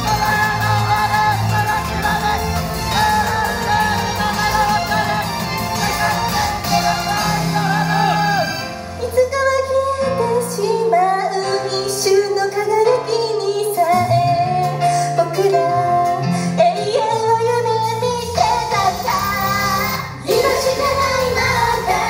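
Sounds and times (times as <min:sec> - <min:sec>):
loud backing music: 0:00.0 - 0:22.0
women singing pop song: 0:00.0 - 0:22.0.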